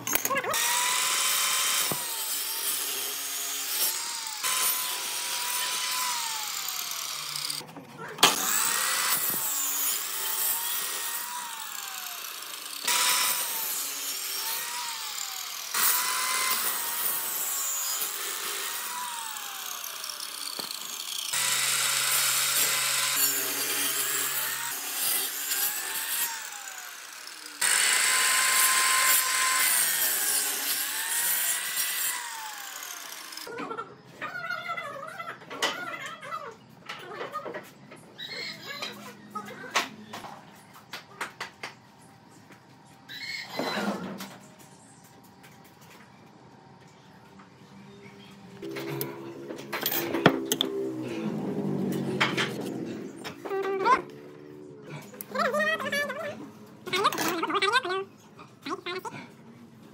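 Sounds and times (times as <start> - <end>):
power tools sawing wood: 0.5 - 7.6, 8.2 - 33.5.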